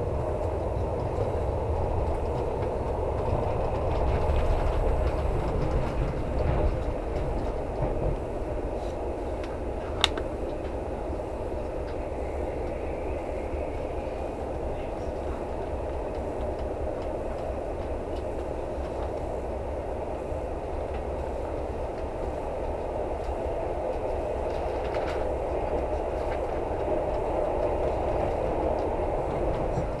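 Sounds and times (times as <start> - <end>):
train wheels rumbling on rails: 0.0 - 30.0.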